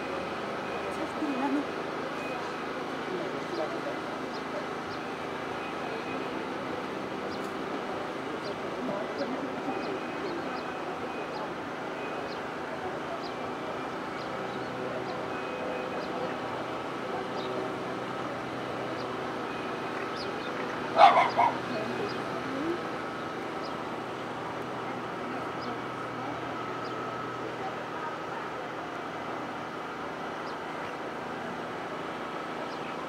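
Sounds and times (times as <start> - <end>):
dog barking: 21.0 - 21.6.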